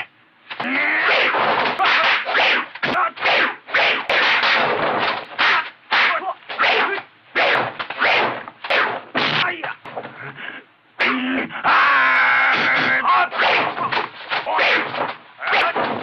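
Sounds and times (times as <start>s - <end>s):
whooshing swishes of punches: 1.1s - 9.4s.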